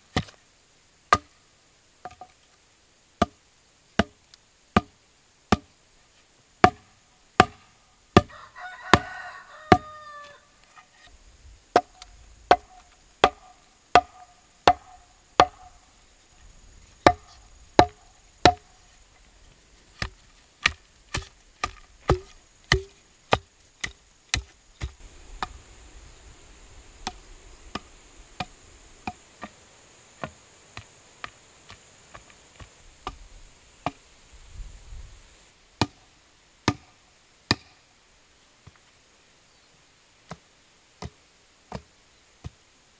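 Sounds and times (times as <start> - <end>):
rooster crowing: 8.2 - 10.6
wooden pole knocking into soil: 11.8 - 15.7, 17.0 - 18.7, 20.0 - 25.6.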